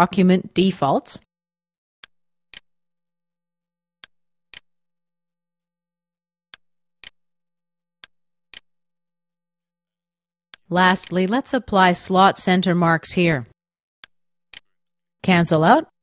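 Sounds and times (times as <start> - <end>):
computer mouse clicks: 14.0 - 14.7.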